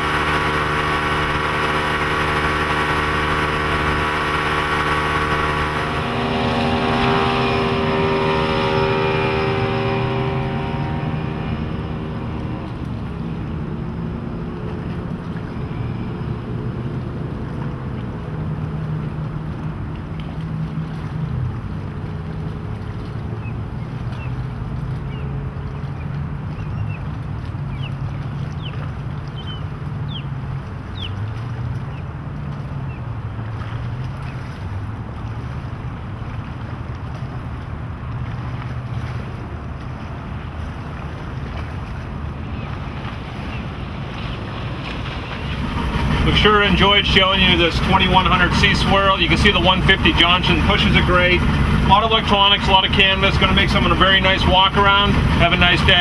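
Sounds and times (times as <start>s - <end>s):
outboard motor drone: 0.0s - 56.0s
wind noise: 40.0s - 56.0s.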